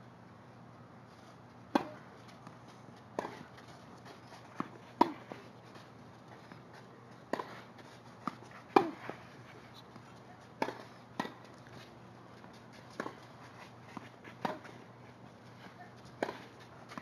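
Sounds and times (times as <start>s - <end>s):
tennis racket hitting ball: 1.7s - 2.5s, 3.1s - 3.6s, 4.6s - 5.4s, 7.3s - 9.1s, 10.6s - 11.6s, 13.9s - 14.8s, 16.1s - 17.0s.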